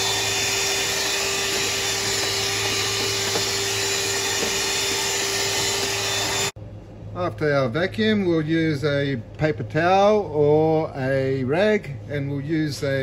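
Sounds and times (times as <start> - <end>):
handheld vacuum running: 0.0 - 6.6.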